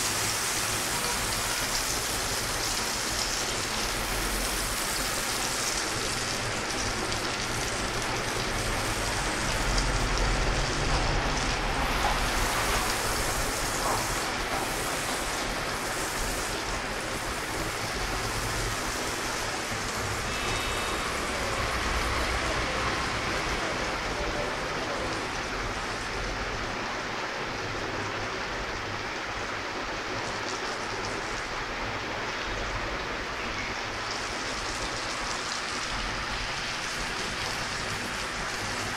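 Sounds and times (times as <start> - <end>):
butter sizzling on a hot griddle: 0.0 - 22.3
street noise rumble: 0.0 - 38.9.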